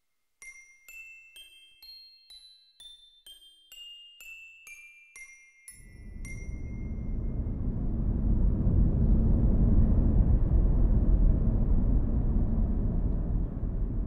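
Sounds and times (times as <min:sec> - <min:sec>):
deep rumble: 0:05.8 - 0:14.0.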